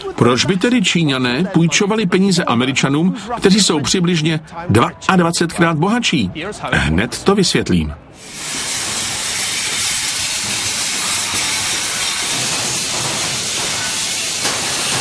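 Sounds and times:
grinding and welding hiss: 8.1 - 15.0.

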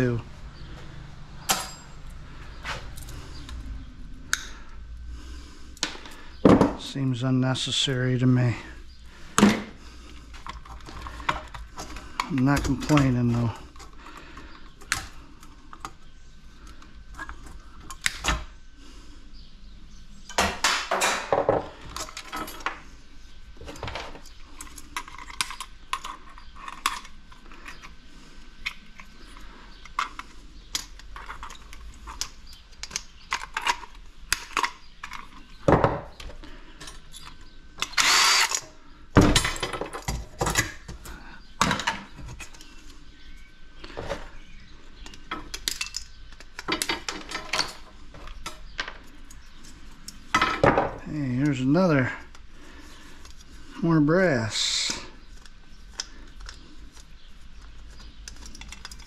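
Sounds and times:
metal parts clicking and clattering: 23.6 - 28.0, 28.6 - 35.7, 45.0 - 50.8, 57.7 - 59.0.

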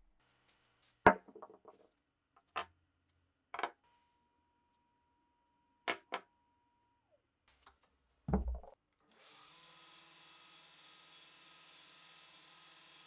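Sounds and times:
metal parts thudding on wood: 8.3 - 8.8
belt grinder running: 9.4 - 13.0.

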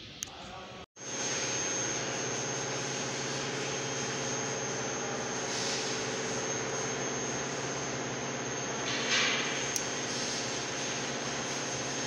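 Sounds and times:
machine whirring with high whine: 0.0 - 12.0.

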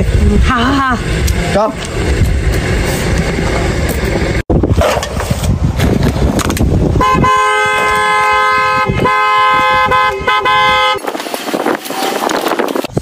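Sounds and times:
car horn blasts: 7.0 - 11.1.

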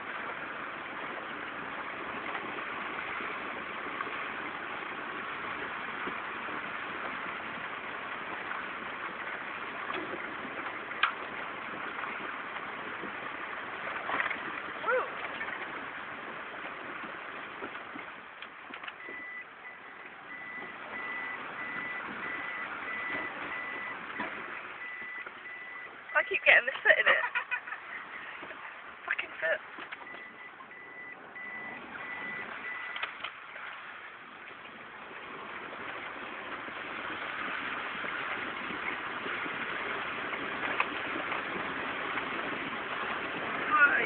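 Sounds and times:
engine noise: 0.0 - 44.0
water rushing: 0.0 - 44.0
electronic warning beep: 19.0 - 26.2, 30.0 - 33.0.

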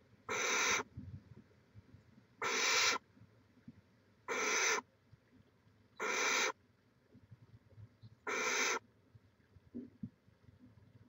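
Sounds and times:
young owls raspy hisses: 0.3 - 0.8, 2.4 - 3.0, 4.3 - 4.8, 6.0 - 6.6, 8.3 - 8.8.

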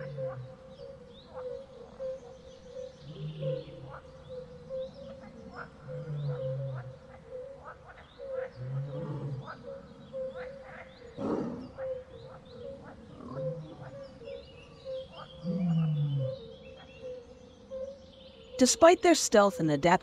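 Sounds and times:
chirping calls: 0.0 - 20.0
big cat growling: 5.5 - 7.0, 8.5 - 9.7, 11.1 - 11.9, 12.8 - 14.0, 15.4 - 16.5.

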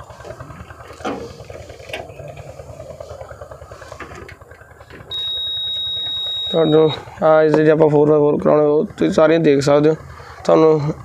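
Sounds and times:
low background rumble: 0.0 - 11.0
high-pitched electronic warning buzzer: 5.1 - 7.0.

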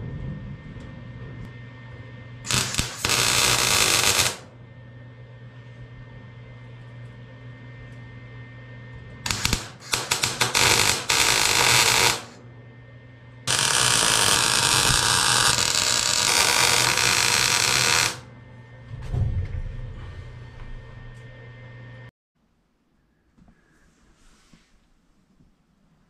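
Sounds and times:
steady low hum: 0.0 - 26.0
arc welding crackling hiss: 2.5 - 4.5, 9.3 - 12.4, 13.5 - 18.2.

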